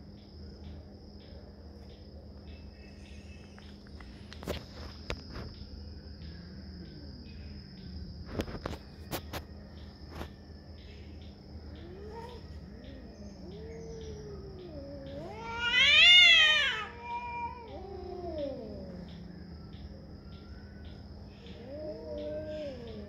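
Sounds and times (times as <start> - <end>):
insect trill: 0.0 - 23.0
cat yowling: 11.8 - 19.2, 21.5 - 23.0.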